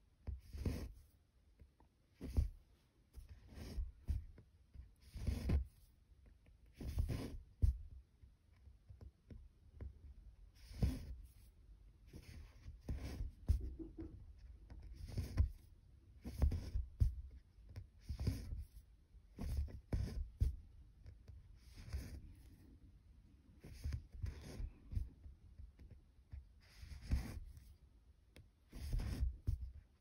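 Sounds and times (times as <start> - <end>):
needle and thread pulled through fabric: 2.2 - 5.9, 6.7 - 7.8, 12.1 - 20.6, 26.3 - 27.8, 28.6 - 30.0.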